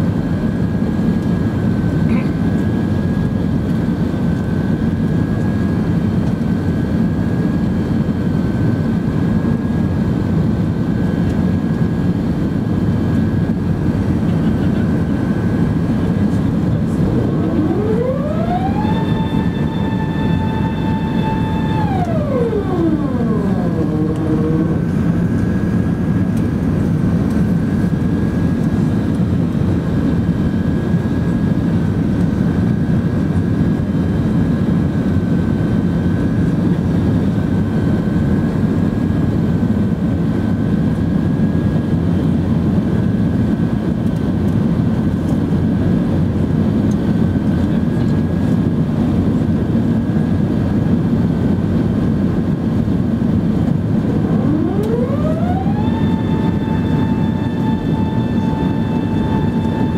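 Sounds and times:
jet engines roaring: 0:00.0 - 0:40.0, 0:41.3 - 0:59.9
airflow over fuselage: 0:08.2 - 0:33.0, 0:44.2 - 0:59.9
faint steady high tone: 0:17.0 - 0:25.0, 0:54.1 - 0:59.9.

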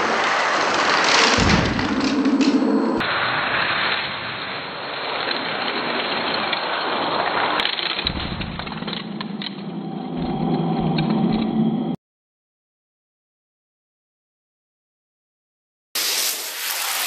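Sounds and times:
toy cars rolling on plastic track: 0:00.0 - 0:08.1.

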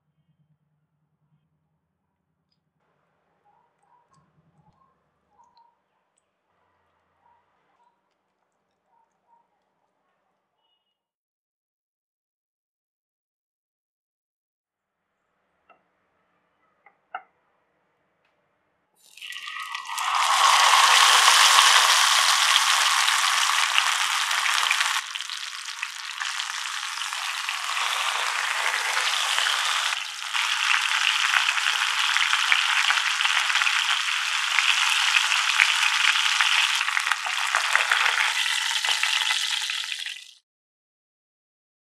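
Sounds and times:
hot oil sizzling: 0:19.0 - 0:40.4.

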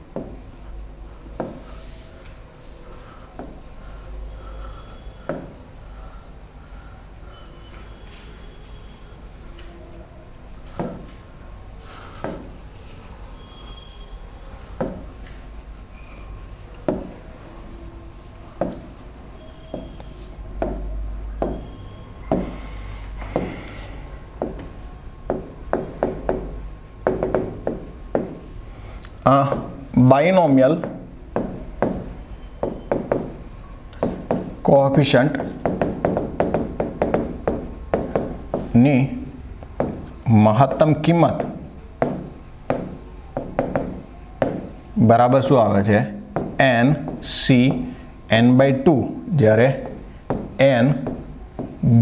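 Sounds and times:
writing scratches on board: 0:00.1 - 0:00.7, 0:01.4 - 0:09.9, 0:10.8 - 0:14.1, 0:14.8 - 0:15.8, 0:16.8 - 0:19.0, 0:19.6 - 0:20.8, 0:24.4 - 0:28.4, 0:29.4 - 0:45.5, 0:46.3 - 0:52.0
hand rubbing touchscreen: 0:19.7 - 0:20.4, 0:31.0 - 0:45.0.

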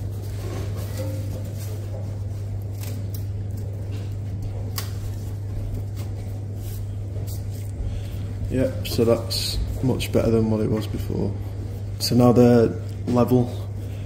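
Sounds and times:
steady low hum: 0:00.0 - 0:14.0
gloved hands clicking and rubbing: 0:04.6 - 0:06.1.

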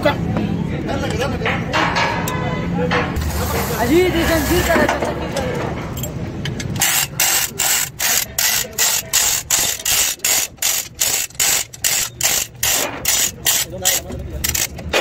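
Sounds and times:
chain hoist ratchet clicking: 0:06.0 - 0:15.0.

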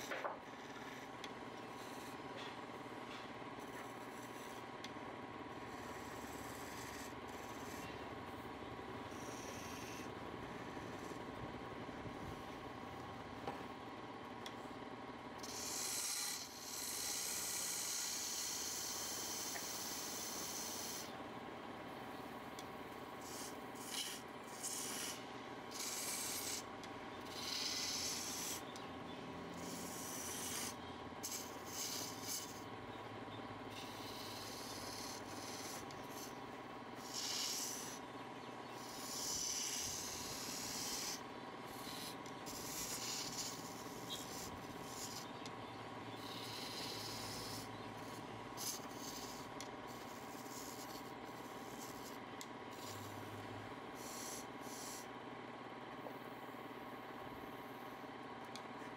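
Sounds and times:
tool scraping spinning wood: 0:00.0 - 0:12.7, 0:14.5 - 0:21.2, 0:22.0 - 0:55.2
wood lathe humming: 0:00.5 - 0:12.7, 0:22.4 - 0:52.2.

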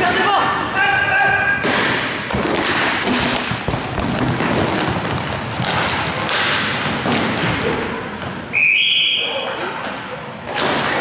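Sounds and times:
rumble of skates: 0:00.0 - 0:08.5
hockey stick hits: 0:01.5 - 0:08.5, 0:09.4 - 0:11.0
thuds against rink boards: 0:01.6 - 0:08.4, 0:10.5 - 0:11.0.

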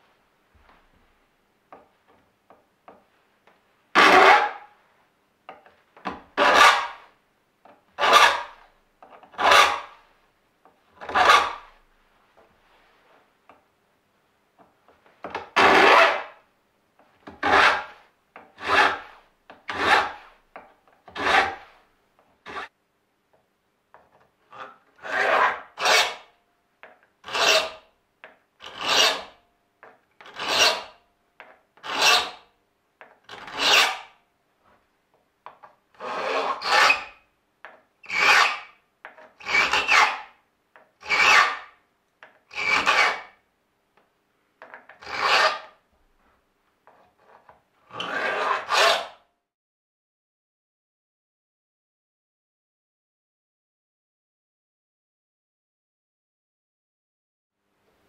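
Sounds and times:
file rasping on saw teeth: 0:06.4 - 0:07.0, 0:08.0 - 0:08.6, 0:09.3 - 0:10.0, 0:17.4 - 0:18.0, 0:18.6 - 0:20.3, 0:21.1 - 0:21.7, 0:27.2 - 0:27.9, 0:28.6 - 0:29.4, 0:30.2 - 0:31.0, 0:31.8 - 0:32.5, 0:33.3 - 0:34.1, 0:36.0 - 0:37.2, 0:38.0 - 0:38.8, 0:39.4 - 0:40.3, 0:41.0 - 0:41.7, 0:42.5 - 0:43.4, 0:45.0 - 0:45.7, 0:47.9 - 0:49.2.

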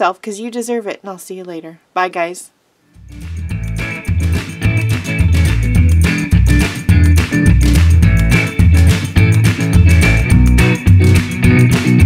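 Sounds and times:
guitar: 0:02.9 - 0:12.0
bass line: 0:03.0 - 0:12.0.

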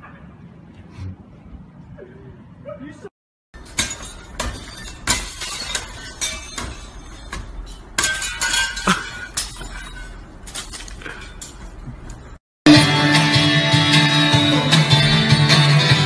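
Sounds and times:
shattering glass tinkle: 0:03.6 - 0:12.4.

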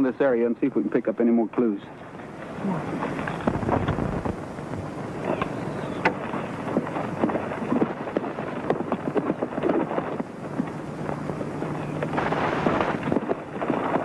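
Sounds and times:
horse hoofbeats clattering: 0:05.2 - 0:14.0.

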